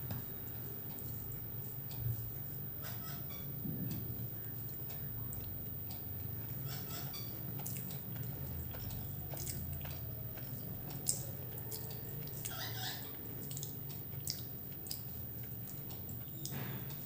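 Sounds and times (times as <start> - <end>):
person chewing food: 4.6 - 17.0.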